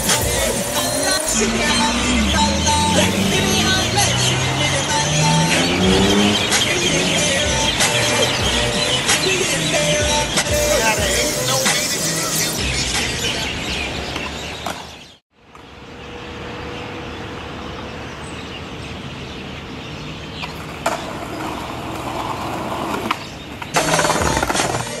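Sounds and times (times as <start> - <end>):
background music: 0.0 - 13.2
traffic noise: 0.0 - 25.0.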